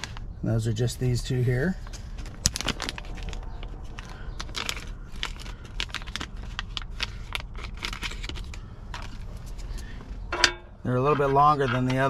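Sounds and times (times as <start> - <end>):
plastic bag crinkling: 1.8 - 10.3.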